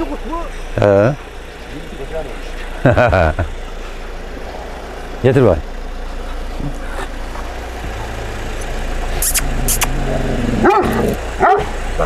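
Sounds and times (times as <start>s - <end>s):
vehicle engine idling: 0.0s - 12.0s
dog bark: 10.6s - 11.8s.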